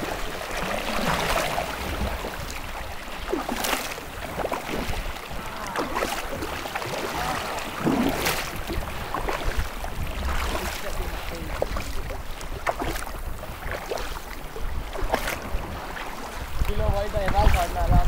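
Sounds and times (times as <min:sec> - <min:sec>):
water splashing against kayak bow: 0:00.0 - 0:18.0
wind rumble on microphone: 0:00.0 - 0:18.0.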